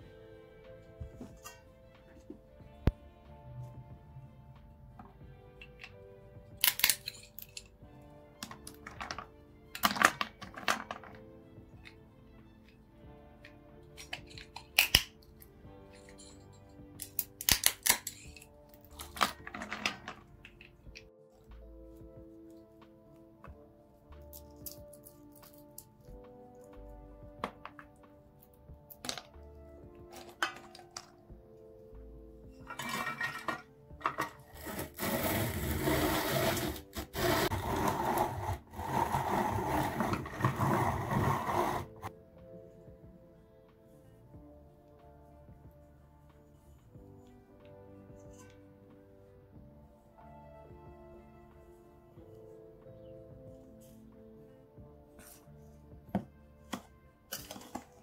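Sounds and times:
background music: 0:00.0 - 0:58.0
kitchen handling clicks and knocks: 0:32.7 - 0:34.4
harsh grinding noise: 0:34.4 - 0:42.1.

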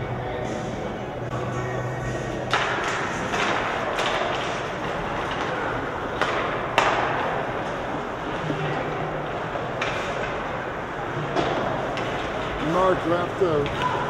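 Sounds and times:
sticks and puck knocking: 0:02.5 - 0:10.5.

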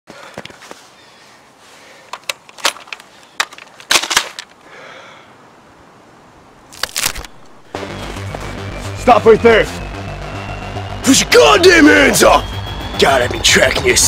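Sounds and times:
handling clicks and knocks: 0:02.1 - 0:04.6.

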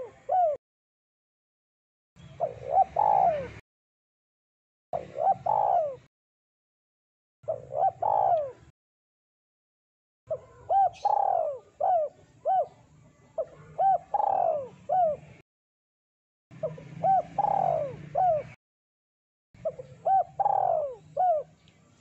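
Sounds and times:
dove cooing: 0:00.0 - 0:00.6, 0:02.2 - 0:03.6, 0:05.0 - 0:06.1, 0:07.4 - 0:08.7, 0:10.3 - 0:15.4, 0:16.6 - 0:18.6, 0:19.6 - 0:21.6.

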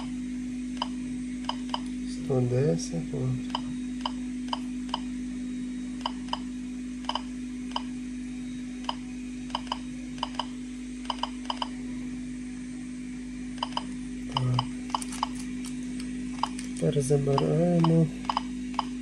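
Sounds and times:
steady low hum: 0:00.0 - 0:19.0
geiger counter clicking: 0:03.5 - 0:05.1, 0:06.0 - 0:07.9, 0:08.9 - 0:10.5, 0:11.1 - 0:11.7, 0:13.6 - 0:15.3, 0:17.3 - 0:19.0.

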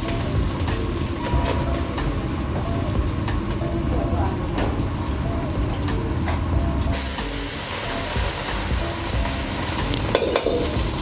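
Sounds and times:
faint background music: 0:00.0 - 0:11.0.

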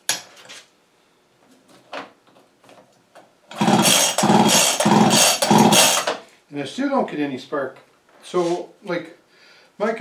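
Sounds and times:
chainsaw recoil starter pulled: 0:03.5 - 0:06.2.

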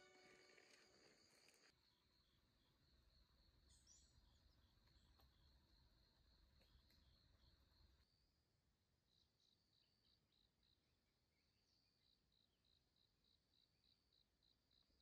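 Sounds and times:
insect chirps: 0:00.0 - 0:08.2.

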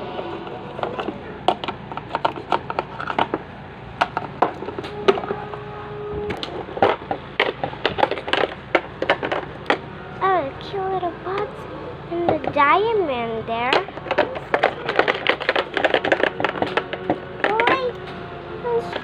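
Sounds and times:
plastic toy clicks and knocks: 0:06.4 - 0:09.8, 0:13.7 - 0:18.0.

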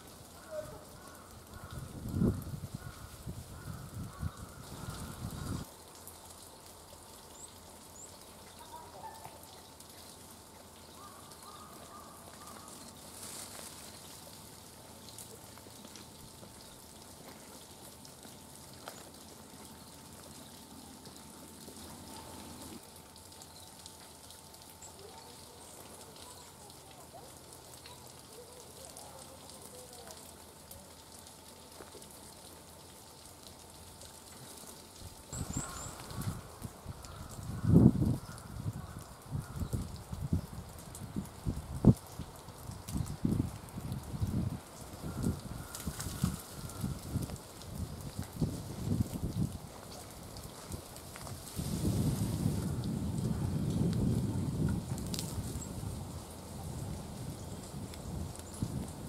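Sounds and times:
steady low hiss: 0:00.0 - 0:59.0
songbirds chirping: 0:02.8 - 0:31.8.

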